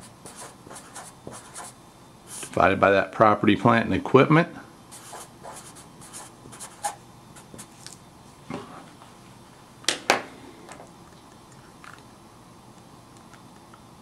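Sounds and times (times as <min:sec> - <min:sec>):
marker scratching on paper: 0:00.0 - 0:02.5, 0:04.9 - 0:07.7.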